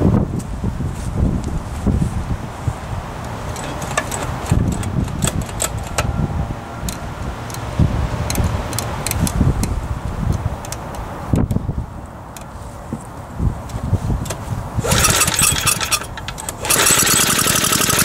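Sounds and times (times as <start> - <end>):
wind rumble on microphone: 0.0 - 16.7
metallic clicks and rattles: 3.5 - 6.1, 14.8 - 18.0.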